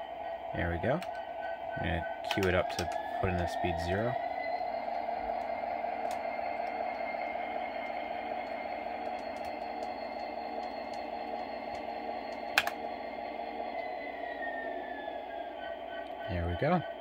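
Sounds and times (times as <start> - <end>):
model locomotive engine hum: 0.0 - 17.0
keyboard clicks: 2.3 - 3.4, 8.4 - 9.9, 12.5 - 12.8.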